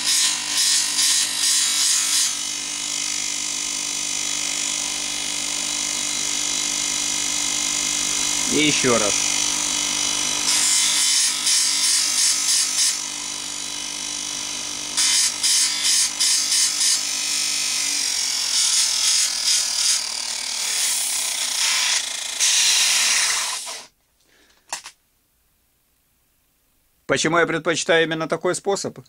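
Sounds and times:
disc sander motor running: 0.0s - 23.8s.

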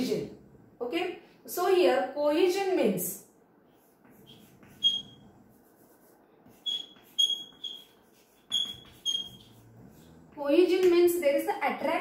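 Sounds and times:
chalk squeaking on chalkboard: 3.7s - 10.3s
chalk scratching: 3.7s - 10.4s.

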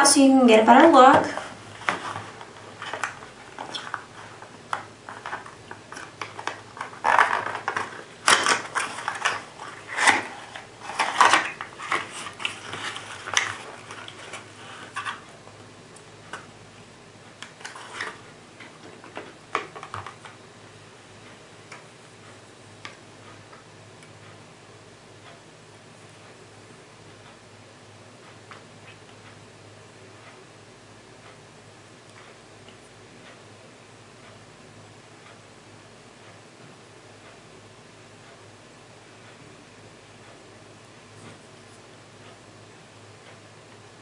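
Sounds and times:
cardboard scraping: 1.2s - 4.4s, 6.8s - 15.2s.

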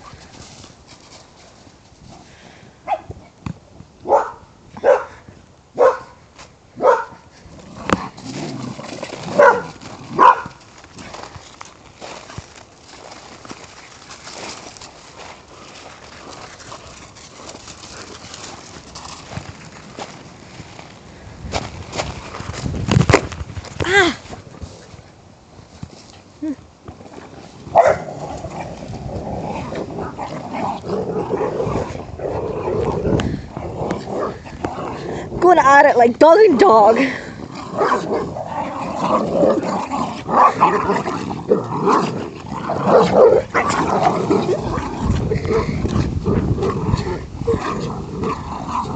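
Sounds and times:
rustling: 0.0s - 2.6s, 7.2s - 35.8s
dog barking: 4.1s - 5.1s, 5.8s - 6.2s, 6.8s - 7.2s, 9.4s - 10.6s, 27.8s - 28.1s
dogs growling: 7.4s - 10.4s, 27.0s - 35.4s, 37.0s - 48.9s.

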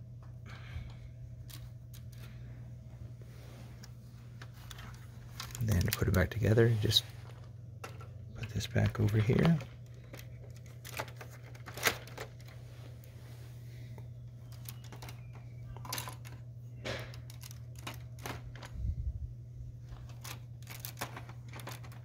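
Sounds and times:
steady low hum: 0.0s - 22.0s
plastic bricks clicking: 20.1s - 22.0s.

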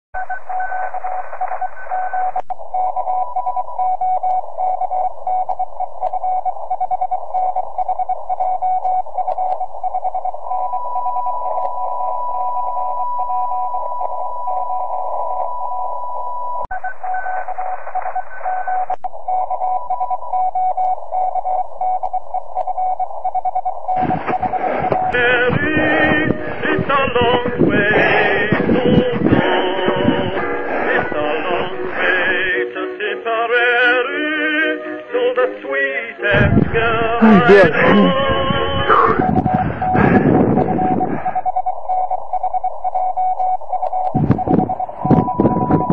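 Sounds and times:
morse code tones: 0.2s - 32.7s, 36.2s - 45.9s
radio receiver hiss: 22.0s - 32.5s, 36.4s - 45.9s
music: 25.2s - 36.8s.

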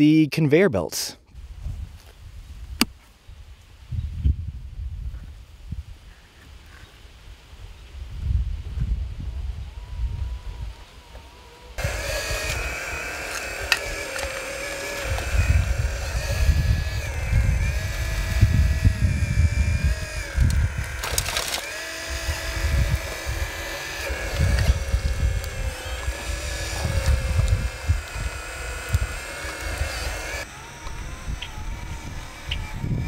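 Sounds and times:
wind rumbling on microphone: 1.4s - 33.0s
electric motors whining: 9.4s - 33.0s.

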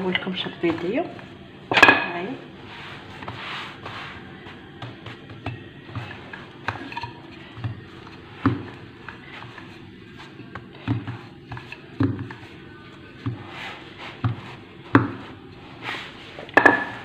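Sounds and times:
hands thumping pizza dough: 13.2s - 15.4s.

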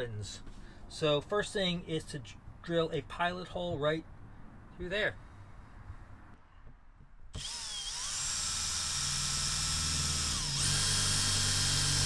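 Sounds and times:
drill drilling sheet metal: 7.4s - 12.0s.

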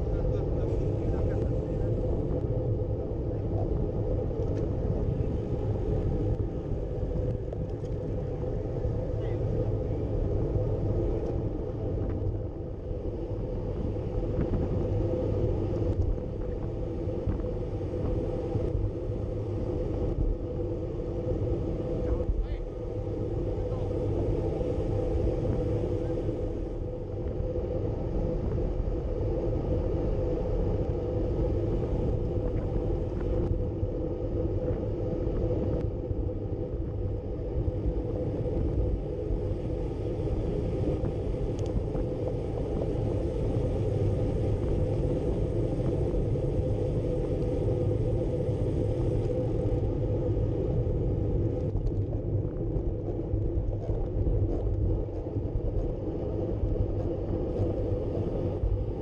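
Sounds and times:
bike tyres rolling on asphalt: 0.0s - 59.0s
wind buffeting microphone: 0.0s - 59.0s.

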